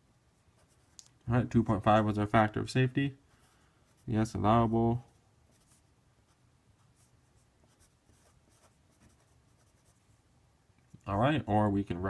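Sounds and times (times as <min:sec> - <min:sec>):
pen scratching on paper: 0:00.6 - 0:01.0, 0:05.1 - 0:10.0.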